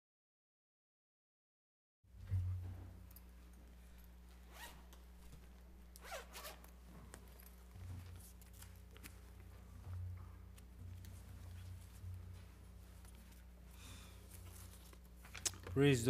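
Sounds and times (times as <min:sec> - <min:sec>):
low electrical hum: 0:02.1 - 0:16.0
soft rustles: 0:04.2 - 0:15.4.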